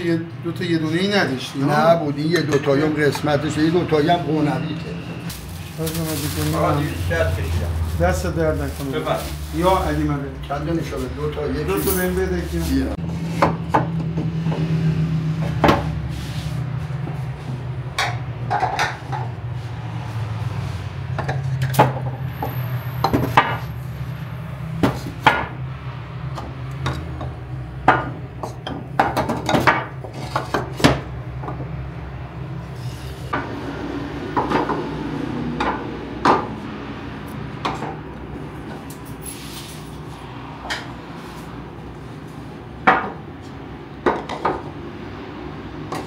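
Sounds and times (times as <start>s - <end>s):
clay pots knocking and clinking: 26.4s - 31.7s, 44.0s - 44.7s.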